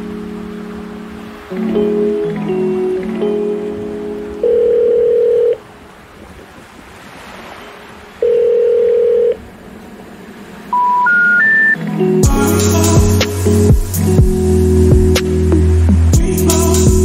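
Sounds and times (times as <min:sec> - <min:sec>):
faint surf hiss: 0:00.0 - 0:17.0
telephone ringback tone: 0:03.4 - 0:05.6, 0:08.2 - 0:09.4, 0:10.7 - 0:11.8
three rising telephone notes: 0:10.7 - 0:11.8.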